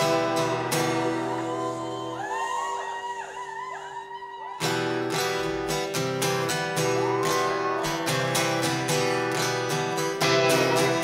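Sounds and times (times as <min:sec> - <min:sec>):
strummed guitar chords: 0:00.0 - 0:02.6, 0:04.6 - 0:11.0
wavering held high notes: 0:00.0 - 0:05.6, 0:06.6 - 0:11.0
rock band playing live: 0:07.0 - 0:11.0.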